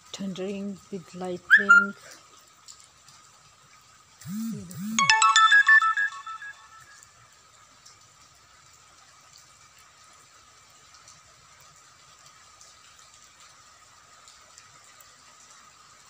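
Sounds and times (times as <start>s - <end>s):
faint steady rain hiss: 0.0s - 16.0s
electronic phone ringtone: 4.3s - 7.0s.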